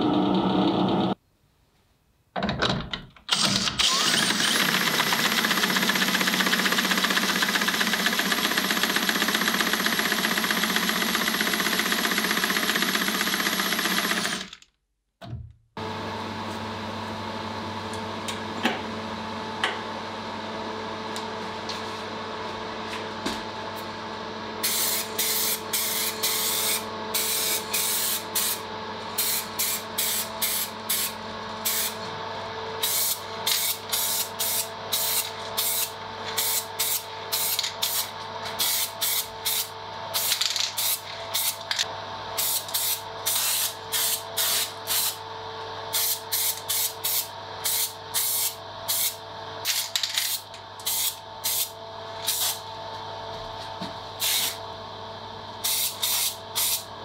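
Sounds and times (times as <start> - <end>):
electric machine hum: 0.0 - 1.2, 15.8 - 57.0.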